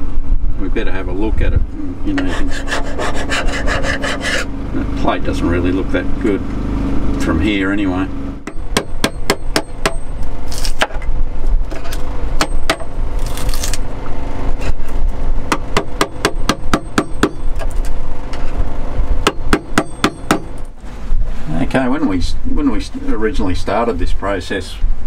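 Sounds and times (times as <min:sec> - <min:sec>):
chisel scrapes: 0:02.1 - 0:04.5
hammer striking chisel: 0:08.4 - 0:10.1, 0:12.4 - 0:13.0, 0:15.5 - 0:17.5, 0:19.2 - 0:20.6.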